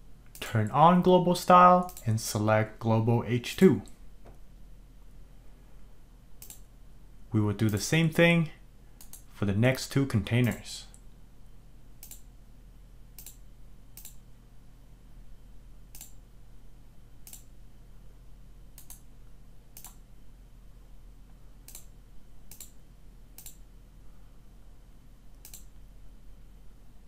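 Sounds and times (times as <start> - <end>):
faint low hum: 0.0 - 27.0
computer mouse clicking: 6.4 - 6.7, 9.0 - 9.3, 12.0 - 12.3, 13.2 - 13.4, 14.0 - 14.2, 15.9 - 16.2, 17.2 - 17.5, 18.8 - 19.1, 19.8 - 20.0, 21.7 - 21.9, 22.5 - 22.8, 23.4 - 23.6, 25.4 - 25.7.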